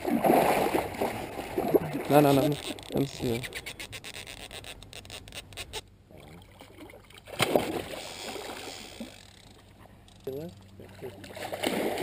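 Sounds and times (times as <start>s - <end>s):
loud splash: 0.0s - 2.1s, 7.3s - 8.6s, 11.4s - 12.0s
fish thrashing and splashing: 6.4s - 9.6s, 10.9s - 12.0s.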